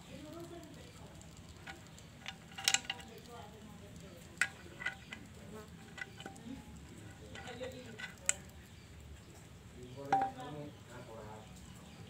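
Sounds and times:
metallic clicks of clutch parts: 1.2s - 3.4s, 4.0s - 8.6s.

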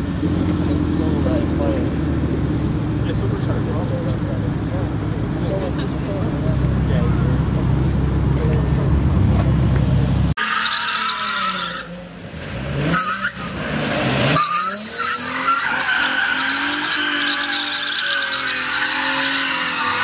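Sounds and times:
car engine revving: 0.0s - 20.0s
tyres squealing: 14.3s - 20.0s.

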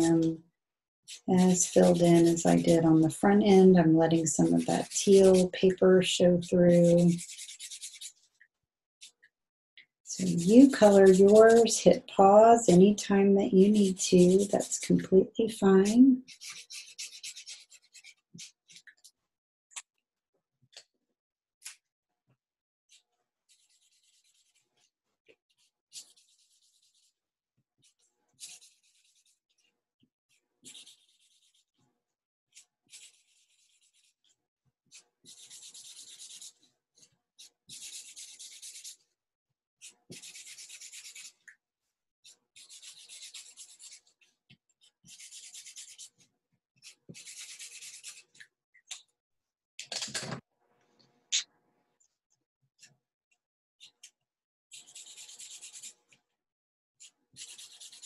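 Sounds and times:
marker scratching on paper: 1.1s - 8.3s, 10.2s - 15.2s, 15.8s - 19.0s, 22.9s - 24.7s, 25.5s - 27.1s, 27.8s - 29.7s, 30.6s - 31.8s, 32.5s - 34.3s, 34.9s - 36.6s, 37.4s - 39.0s, 39.8s - 41.4s, 42.6s - 46.2s, 46.8s - 48.4s, 54.7s - 56.0s, 57.0s - 58.0s.

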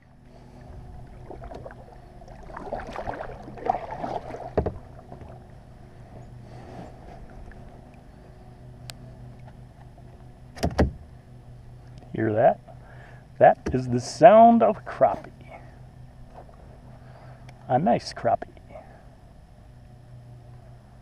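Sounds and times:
low hum: 0.0s - 21.0s
paddle splashing in water: 1.1s - 5.4s.

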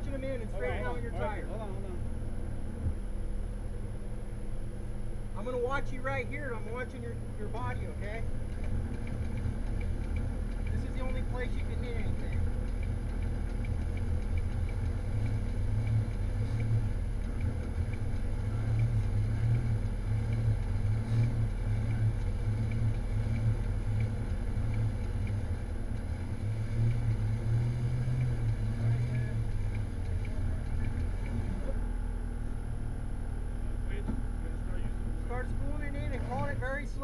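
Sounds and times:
off-road vehicle engine idling: 0.0s - 37.0s.

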